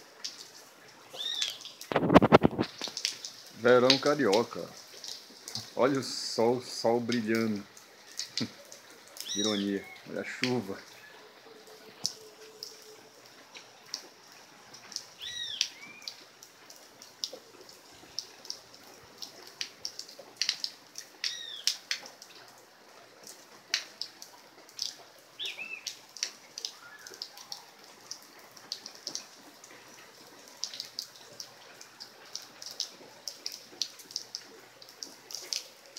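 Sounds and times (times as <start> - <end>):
rain hiss: 0.0 - 35.9
raindrops ticking: 0.0 - 35.9
bird chirping: 1.1 - 1.8, 9.2 - 10.2, 15.2 - 16.2, 21.2 - 21.7, 25.4 - 25.9.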